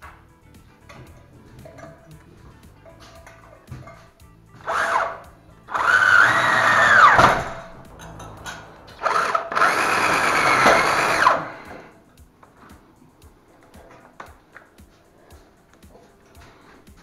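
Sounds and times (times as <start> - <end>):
cordless drill driving screws: 4.6 - 7.4, 8.9 - 11.9.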